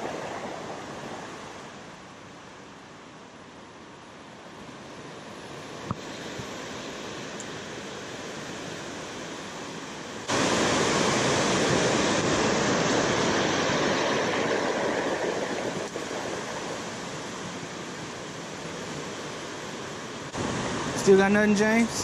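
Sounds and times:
water rushing over spillway: 9.5 - 22.0.

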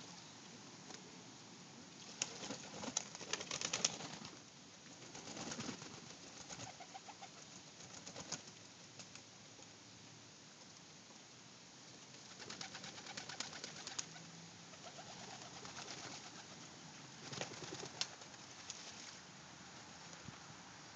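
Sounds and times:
wing flaps: 2.0 - 4.4, 5.0 - 7.2, 12.1 - 14.2, 14.8 - 16.6, 17.2 - 19.2
pigeons cooing: 12.4 - 16.6.

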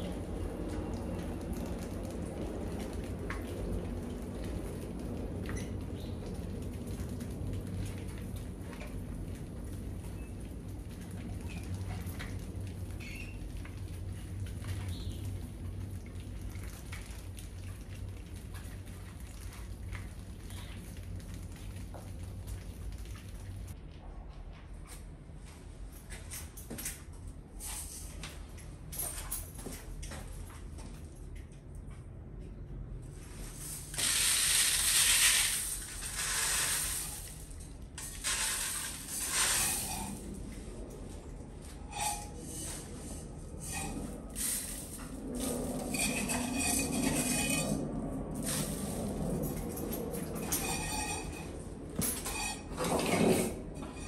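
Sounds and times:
rice grains rattling through mesh: 33.3 - 40.5, 41.9 - 47.8, 48.4 - 49.2.

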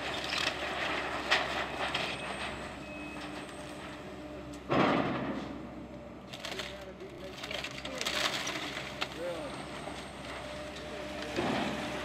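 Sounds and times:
faint mechanical hum: 0.0 - 12.0
debris crunching and clattering: 6.3 - 9.3.

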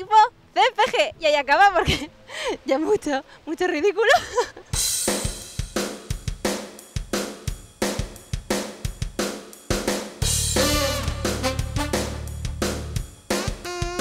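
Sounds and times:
drum kit beat: 4.7 - 14.0
low bass tone: 10.2 - 13.0.

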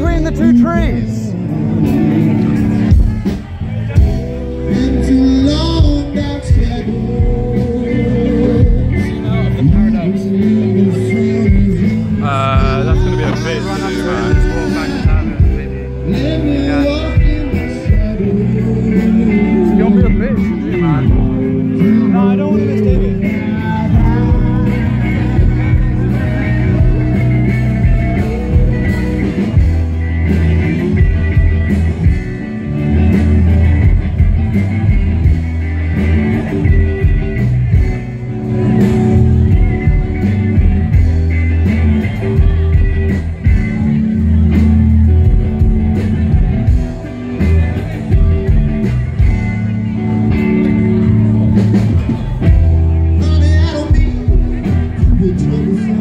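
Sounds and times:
music with deep bass line: 0.0 - 56.0
person singing: 0.4 - 30.0, 52.5 - 56.0.

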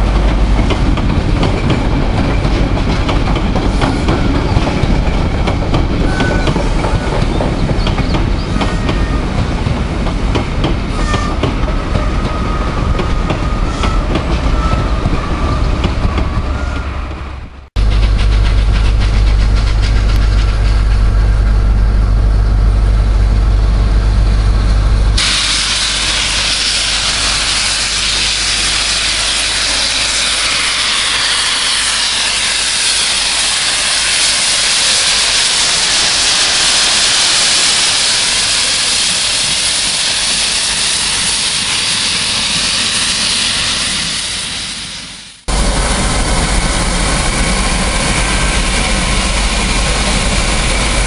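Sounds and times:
steam locomotive hissing steam: 0.0 - 22.4, 25.2 - 51.0
low steady rumble: 17.4 - 25.2.

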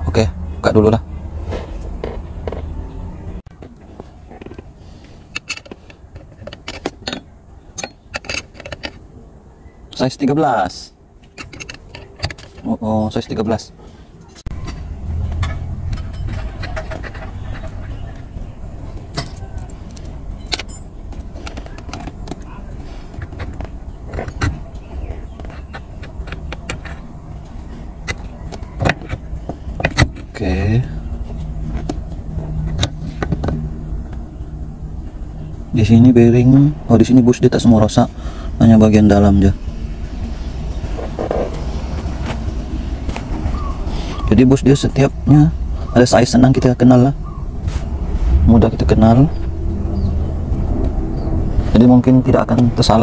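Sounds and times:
hand tools clinking on metal: 6.5 - 9.0, 19.1 - 20.9
low hum: 14.2 - 52.9
low steady rumble: 22.1 - 53.0.

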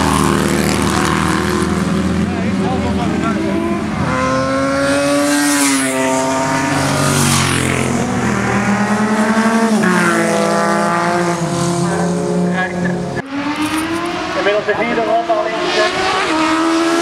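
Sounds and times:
racing motorcycles passing: 0.0 - 17.0.

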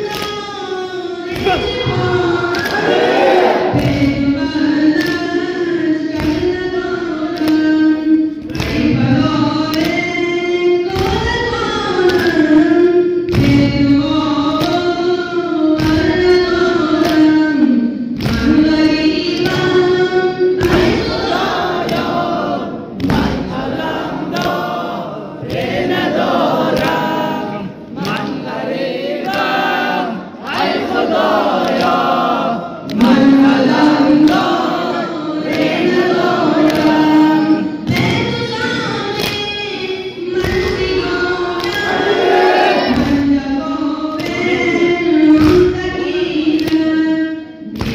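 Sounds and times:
group singing mourning lament: 0.0 - 47.9
heavy thud on the beat: 3.0 - 4.4, 20.6 - 22.3, 23.0 - 23.8, 42.8 - 43.4.

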